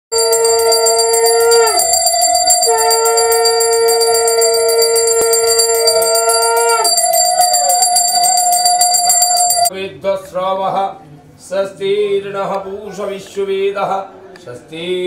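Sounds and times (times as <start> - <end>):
hand bell ringing rapidly: 0.1 - 9.7
conch shell blasts: 0.2 - 7.8.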